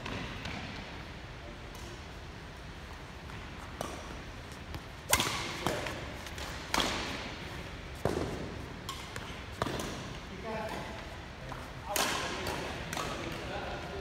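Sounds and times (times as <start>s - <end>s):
badminton racket hitting shuttlecock: 5.0s - 7.3s.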